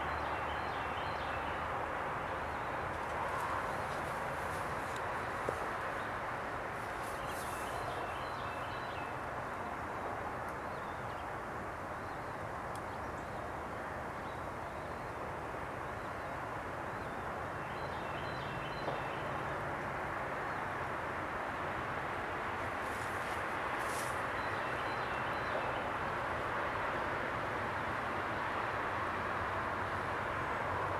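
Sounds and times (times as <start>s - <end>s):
distant road traffic roar: 0.0s - 30.9s.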